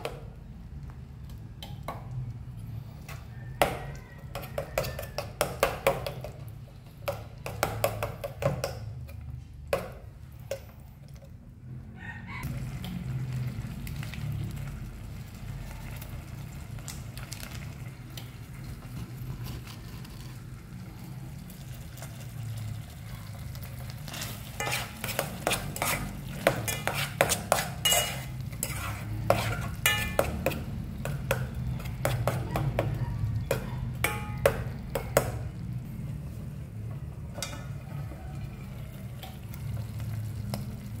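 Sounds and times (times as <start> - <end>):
spoon scraping in metal pot: 24.1 - 32.6
spoon clinking against pot: 24.6 - 32.7, 33.5 - 35.2.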